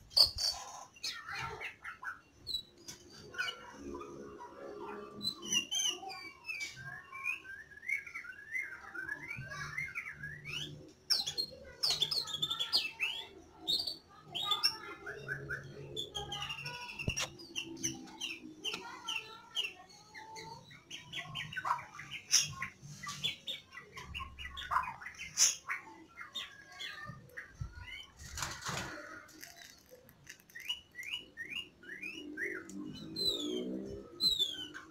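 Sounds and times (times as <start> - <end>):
bird chirping and whistling: 30.5 - 34.9.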